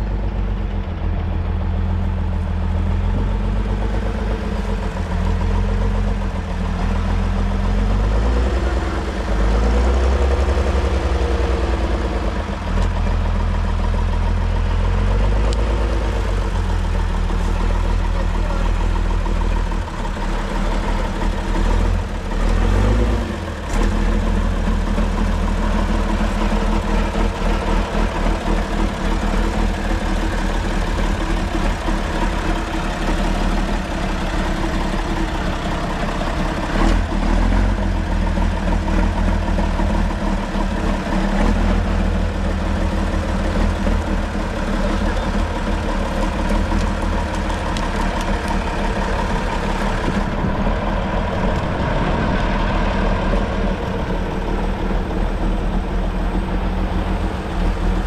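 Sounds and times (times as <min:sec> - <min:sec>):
truck engine working under load: 0:00.0 - 0:58.0.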